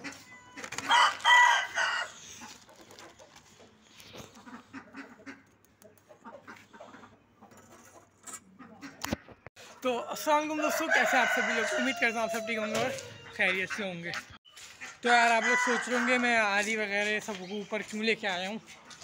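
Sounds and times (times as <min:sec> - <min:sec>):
rooster crowing: 0:00.0 - 0:02.2, 0:10.6 - 0:13.6, 0:15.2 - 0:16.2
faint chicken clucks: 0:00.0 - 0:09.9.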